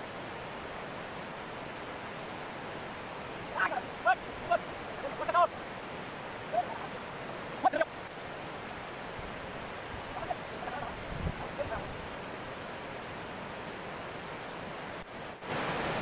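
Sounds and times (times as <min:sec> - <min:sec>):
stream rushing: 0:00.0 - 0:16.0.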